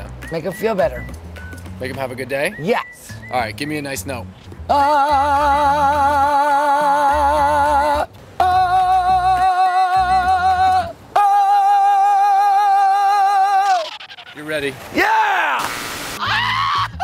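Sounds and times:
man singing long held notes: 4.7 - 13.6.

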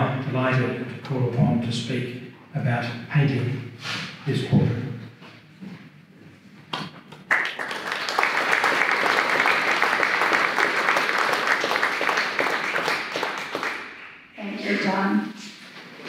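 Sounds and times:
audience applause: 7.3 - 14.0.

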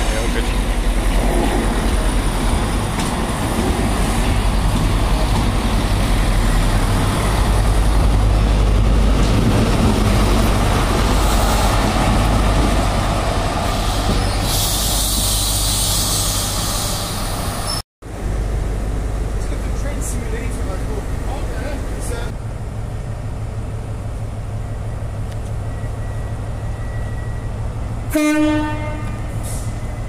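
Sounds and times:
wheel and rail rumble: 0.0 - 30.0
loud hiss of air: 13.8 - 17.7.

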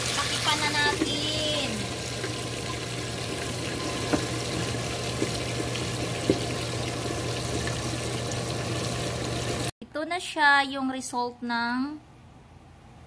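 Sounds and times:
oil popping: 0.0 - 9.7
ribs sizzling in oil: 0.0 - 9.7.

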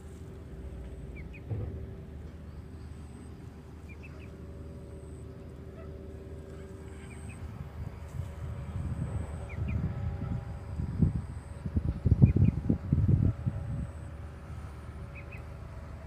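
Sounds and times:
faint hum: 0.0 - 16.0
low rumble: 0.0 - 16.0
small bird chirps: 15.1 - 15.5.

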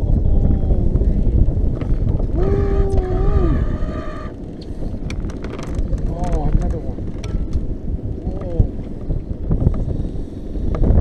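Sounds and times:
wind buffeting microphone: 0.0 - 11.0
held tone dropping in pitch: 2.4 - 4.4.

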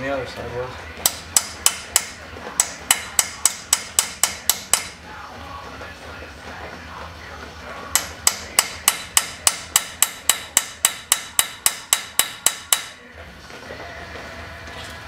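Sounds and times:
hammer striking metal punch: 1.0 - 5.0, 7.9 - 13.0.

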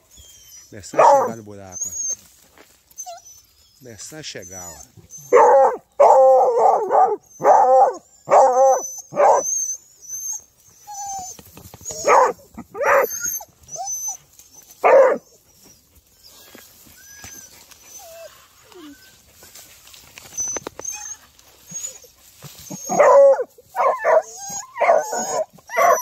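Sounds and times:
hound baying and howling: 0.1 - 2.2, 4.3 - 19.3, 20.2 - 26.0.

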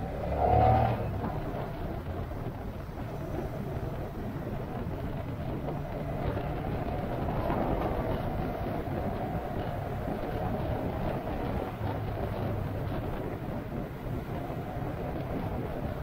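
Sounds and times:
road noise: 0.0 - 16.0
vehicle engine: 0.0 - 16.0.

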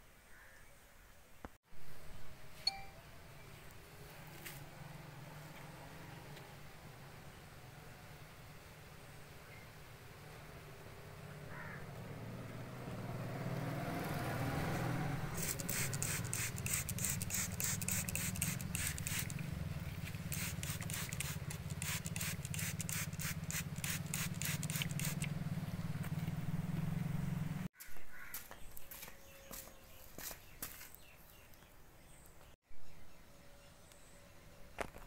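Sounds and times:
spray bottle squirting: 15.3 - 19.4, 20.1 - 25.3.

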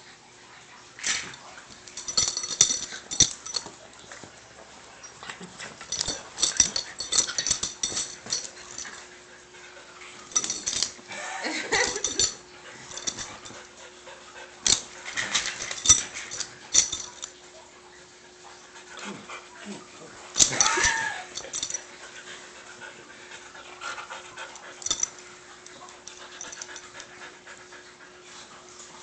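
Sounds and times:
dogs scuffling and scratching: 1.0 - 9.1, 10.1 - 11.1, 11.8 - 13.7, 14.6 - 17.4, 19.8 - 22.2.

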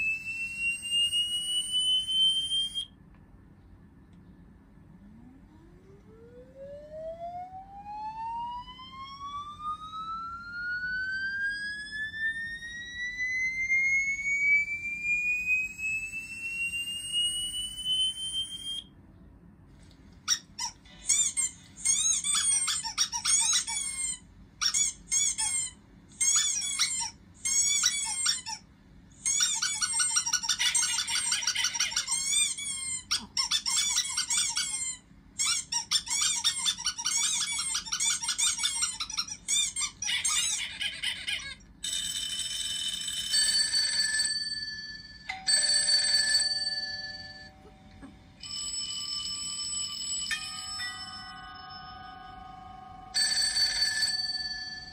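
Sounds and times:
high electronic tone rising: 5.0 - 18.7
dog toy squeaks from phone: 20.3 - 28.6, 29.2 - 42.6.

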